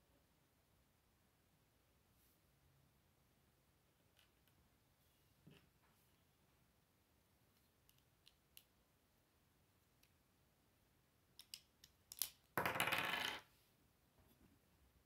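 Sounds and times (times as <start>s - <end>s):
plastic pieces clicking: 11.4s - 12.6s.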